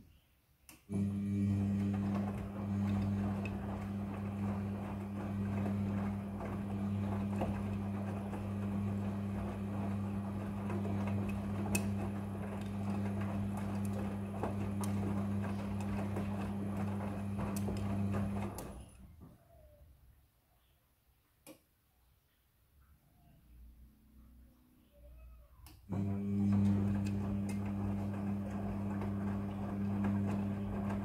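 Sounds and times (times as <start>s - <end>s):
washing machine motor hum: 0.9s - 19.8s, 25.6s - 31.0s.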